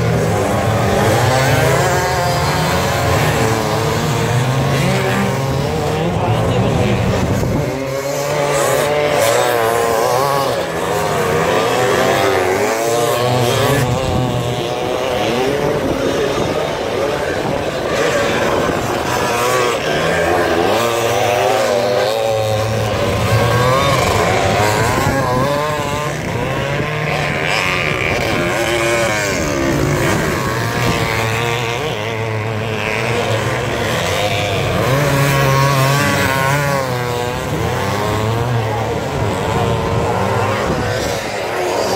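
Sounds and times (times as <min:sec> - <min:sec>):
motorcycle engines revving: 0:00.0 - 0:41.9.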